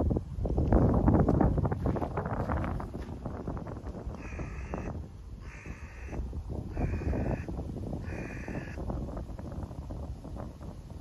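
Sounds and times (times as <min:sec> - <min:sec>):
crow cawing: 0:04.2 - 0:08.8.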